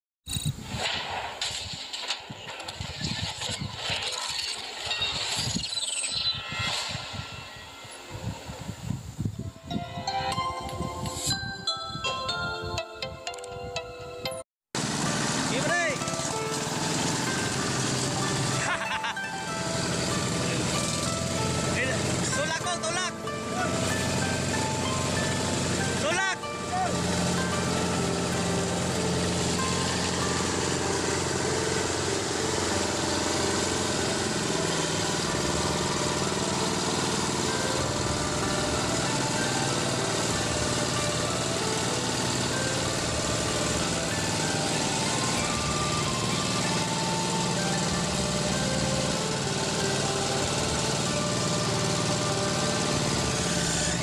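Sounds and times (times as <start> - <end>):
small engine running: 14.8 - 54.0.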